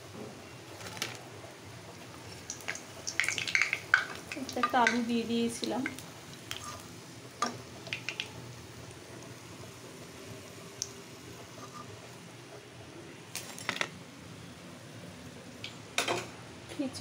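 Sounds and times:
hot oil sizzling: 0.8 - 12.6
metal spoon tapping pan: 3.1 - 5.1.

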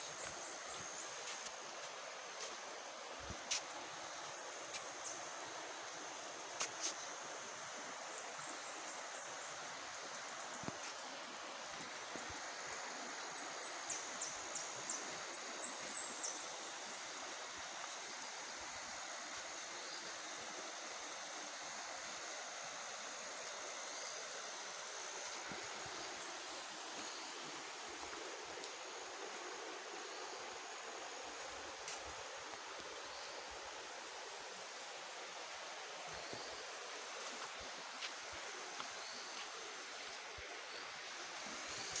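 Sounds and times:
river rushing over stones: 0.0 - 42.0.

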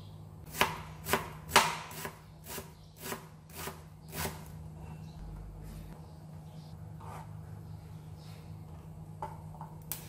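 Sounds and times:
knife chopping on cutting board: 0.5 - 2.2.

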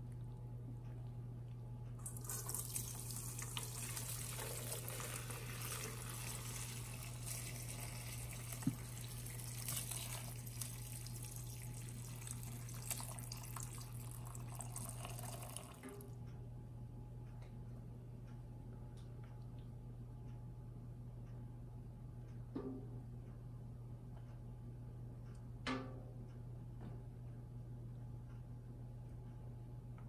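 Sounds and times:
liquid pouring and splashing: 2.0 - 16.0.

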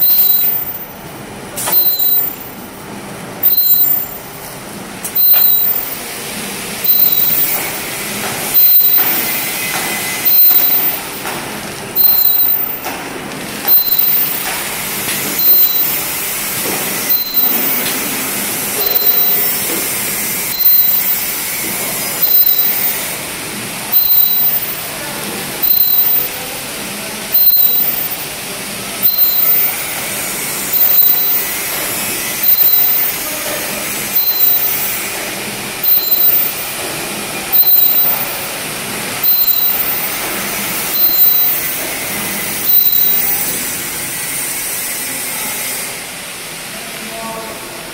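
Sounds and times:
steady machine noise: 0.0 - 47.9
machine hissing stroke: 6.8 - 11.3, 13.6 - 23.2, 23.9 - 26.6, 27.3 - 36.8, 37.5 - 45.6.

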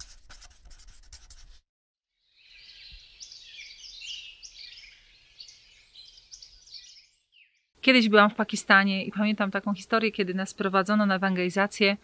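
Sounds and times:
pen scratching on paper: 0.0 - 1.6
small birds twittering: 2.3 - 7.7.

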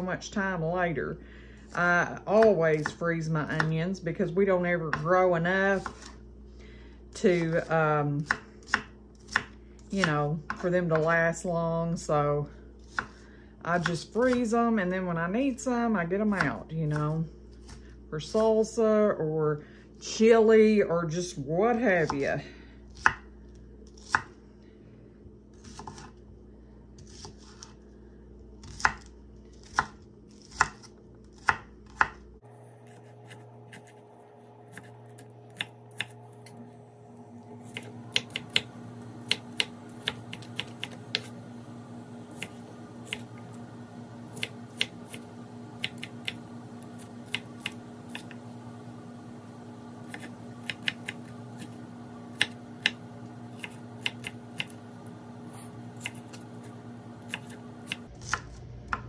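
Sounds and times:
low steady hum: 0.0 - 59.0
knife chopping on wooden board: 5.8 - 6.2, 8.2 - 11.1, 12.8 - 13.2, 23.0 - 23.2, 24.0 - 24.3, 25.6 - 26.1, 28.6 - 32.2, 32.8 - 34.0, 34.7 - 36.2, 37.6 - 41.3, 42.3 - 43.3, 44.3 - 48.3, 50.1 - 54.8, 55.5 - 59.0.

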